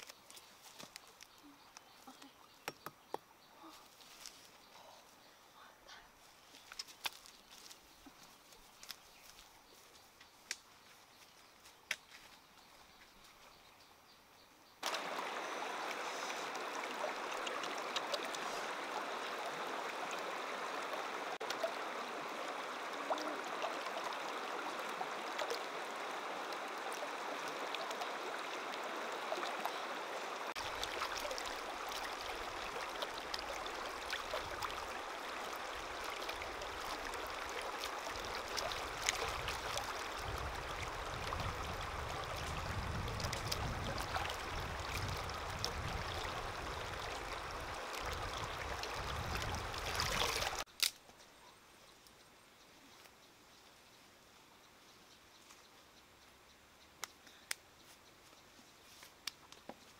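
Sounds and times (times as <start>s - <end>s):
stream water running: 5.9s - 50.9s.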